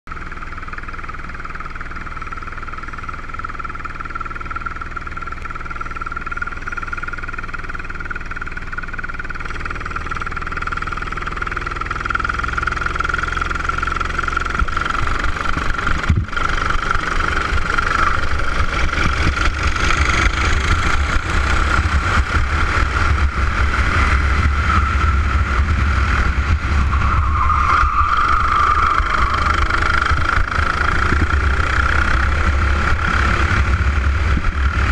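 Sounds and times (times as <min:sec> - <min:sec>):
racing kart engine: 0:00.1 - 0:34.9
low rumble: 0:12.0 - 0:34.9.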